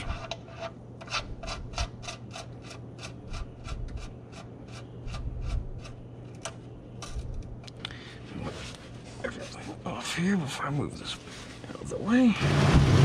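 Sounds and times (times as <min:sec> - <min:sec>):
drain plug threads scraping: 0:00.0 - 0:07.5.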